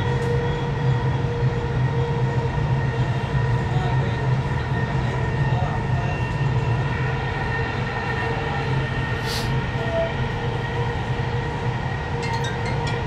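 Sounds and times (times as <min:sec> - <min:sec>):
brief hiss: 0:09.2 - 0:09.5.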